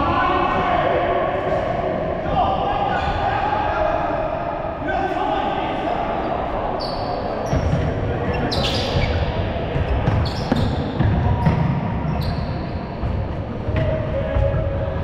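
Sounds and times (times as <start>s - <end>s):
trainers squeaking on wooden floor: 6.8s - 13.3s.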